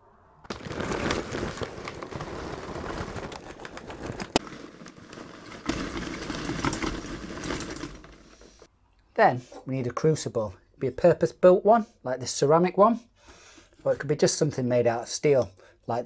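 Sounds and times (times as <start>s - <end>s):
charcoal pieces clattering: 0.5s - 8.7s.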